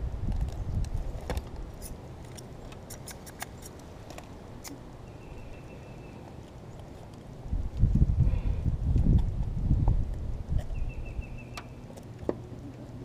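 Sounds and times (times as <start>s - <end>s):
wind rumble on microphone: 0.0s - 2.2s, 7.2s - 13.0s.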